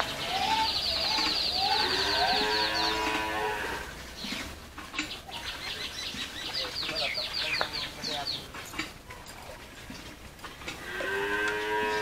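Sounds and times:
cattle mooing: 0:01.0 - 0:04.0, 0:10.8 - 0:12.0.

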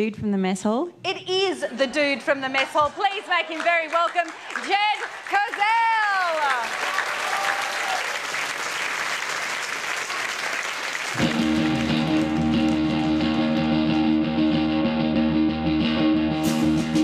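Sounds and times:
audience applauding: 0:02.0 - 0:14.2
electric guitar chords: 0:11.2 - 0:17.0.

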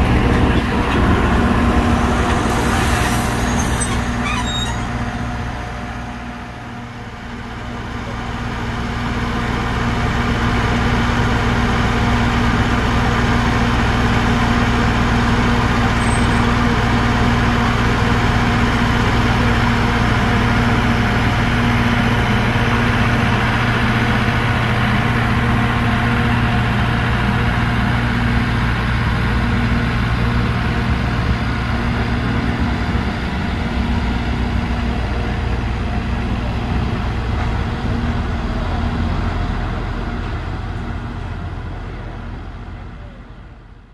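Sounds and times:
diesel locomotive idling: 0:00.0 - 0:43.9.

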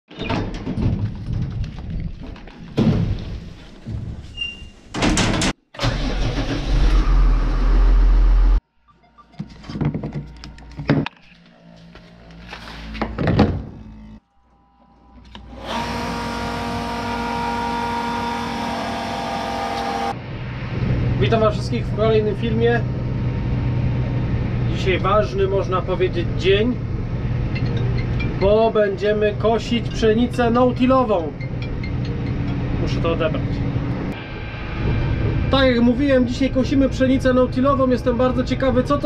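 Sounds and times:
loud steady rumble: 0:06.6 - 0:08.6, 0:15.4 - 0:39.0
handling noises and knocks: 0:09.3 - 0:11.4.

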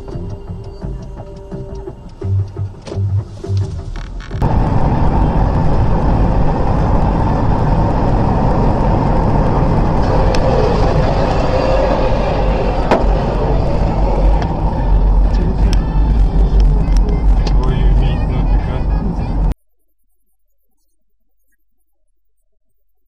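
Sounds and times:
car road and engine noise: 0:00.0 - 0:19.6.

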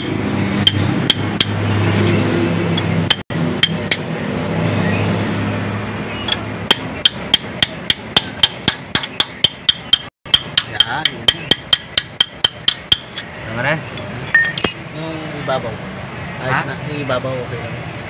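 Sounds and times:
hammer tapping steel punch: 0:06.7 - 0:13.3.

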